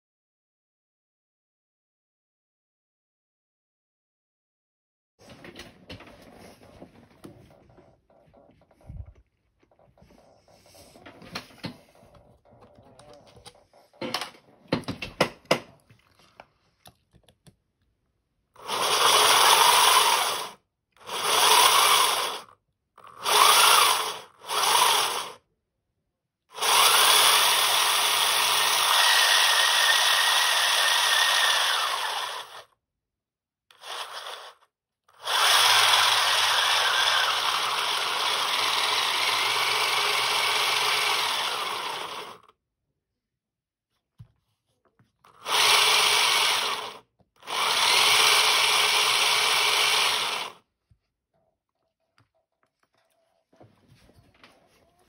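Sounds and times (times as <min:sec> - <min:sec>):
motor and gears whirring: 0:18.6 - 0:25.4, 0:26.6 - 0:32.8, 0:33.7 - 0:42.5, 0:45.2 - 0:50.6.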